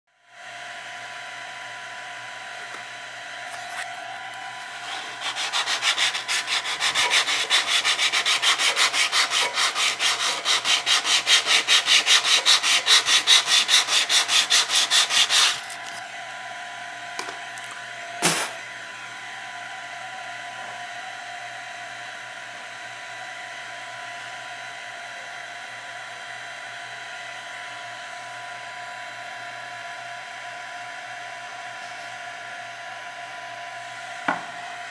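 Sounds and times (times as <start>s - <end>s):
steady background hum: 2.1s - 18.7s
sandpaper rubbing back and forth: 4.6s - 16.0s
sharp knock: 18.2s - 18.6s.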